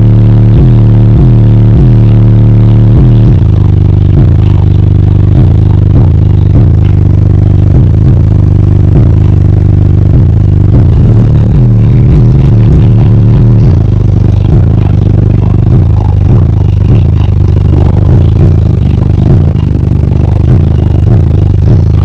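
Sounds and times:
distorted bass-heavy music: 0:00.0 - 0:22.0.

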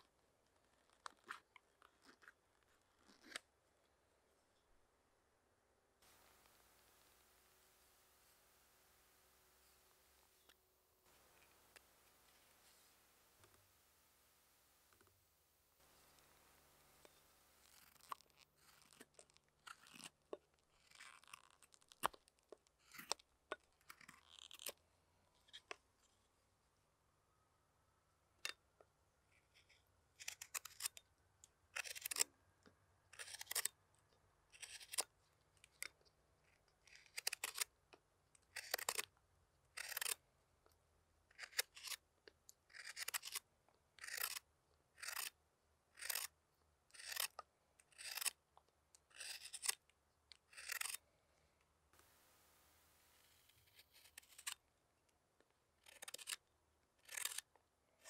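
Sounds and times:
knife cutting wood shavings: 0:15.9 - 0:20.2, 0:33.2 - 0:33.7, 0:34.6 - 0:35.1, 0:36.9 - 0:37.6, 0:38.5 - 0:39.1, 0:39.8 - 0:40.2, 0:42.7 - 0:43.4, 0:44.0 - 0:44.4, 0:45.0 - 0:45.4, 0:46.0 - 0:46.3, 0:46.9 - 0:48.4, 0:49.1 - 0:49.8, 0:50.5 - 0:51.0, 0:53.0 - 0:54.6, 0:55.9 - 0:56.4, 0:57.0 - 0:57.4.

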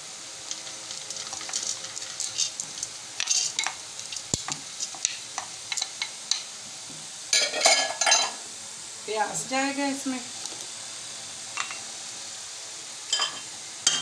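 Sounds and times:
dried lentils pattering into metal pot: 0:00.4 - 0:05.2.

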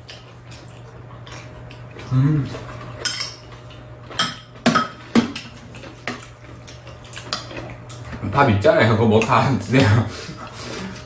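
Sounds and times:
spoons clinking against bowls: 0:03.0 - 0:03.5.

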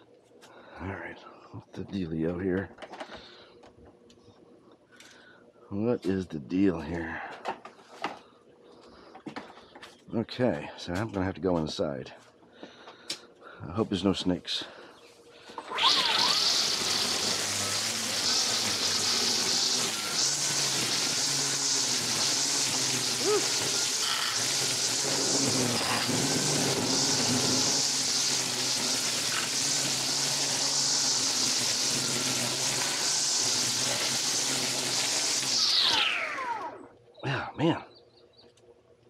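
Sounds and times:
electric trimmer cutting weeds: 0:15.6 - 0:37.0.

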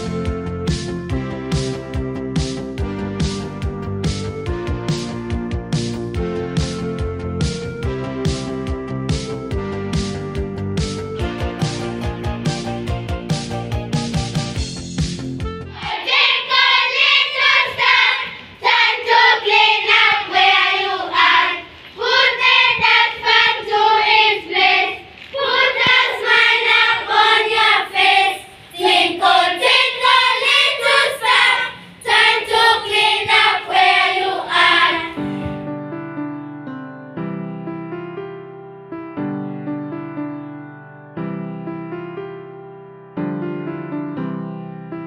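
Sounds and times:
children singing in unison: 0:15.7 - 0:35.4
piano music: 0:33.9 - 0:45.0.

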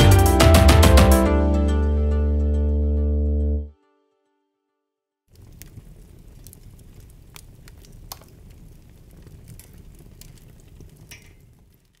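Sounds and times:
campfire crackling: 0:05.3 - 0:12.0.

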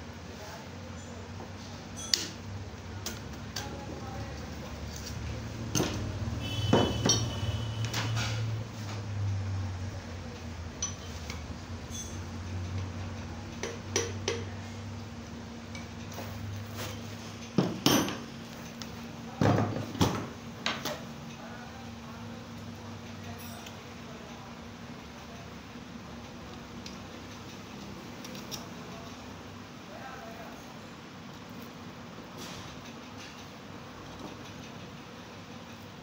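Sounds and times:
metal clinks and knocks: 0:11.8 - 0:12.3.

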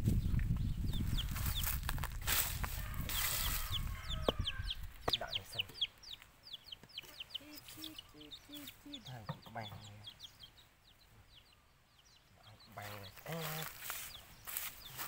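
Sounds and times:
chicks peeping: 0:00.0 - 0:15.0
hen clucking: 0:02.6 - 0:15.0
rustling: 0:12.9 - 0:15.0.

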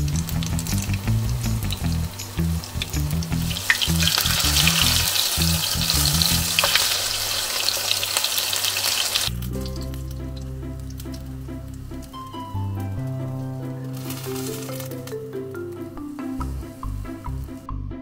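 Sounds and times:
fritters sizzling in hot oil: 0:00.0 - 0:12.4
soft background music with beat: 0:09.3 - 0:18.0.

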